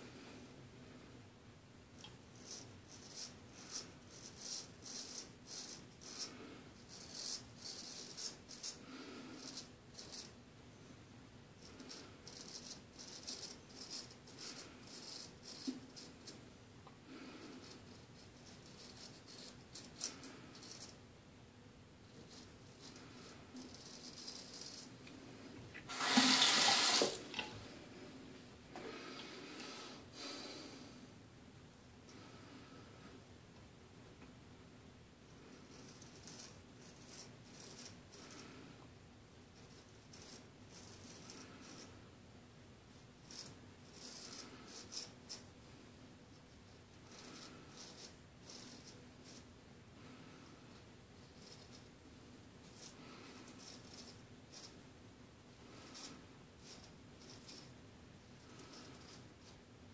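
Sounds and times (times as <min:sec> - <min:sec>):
sink tap running: 0:25.9 - 0:27.5.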